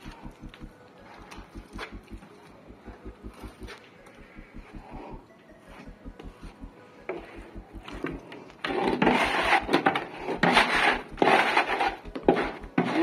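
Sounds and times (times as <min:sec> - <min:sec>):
trowel scraping plaster on wall: 0:08.7 - 0:13.0.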